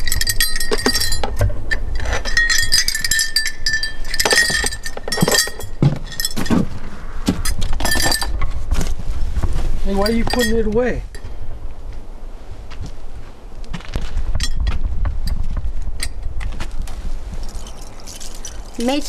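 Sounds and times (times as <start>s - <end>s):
small metal pieces clinking: 0.0s - 6.6s, 17.4s - 19.0s.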